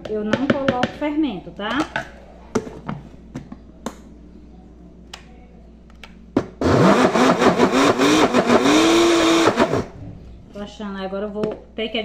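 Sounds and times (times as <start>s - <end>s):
blender motor churning batter: 6.6s - 9.9s.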